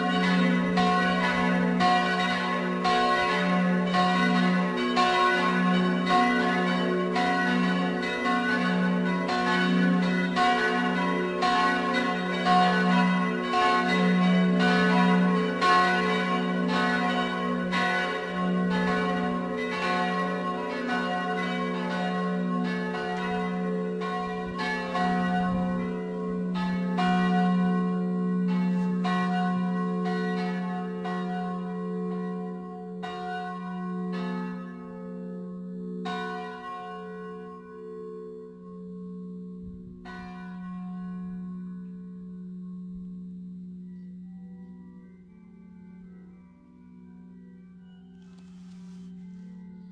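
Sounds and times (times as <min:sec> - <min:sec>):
church bells ringing: 0:00.0 - 0:49.9.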